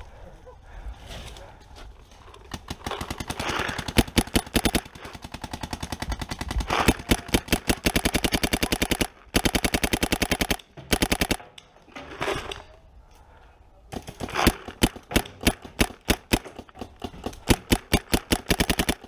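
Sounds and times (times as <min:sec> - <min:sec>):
paintball marker firing rapidly: 0:02.5 - 0:11.4, 0:13.9 - 0:19.0.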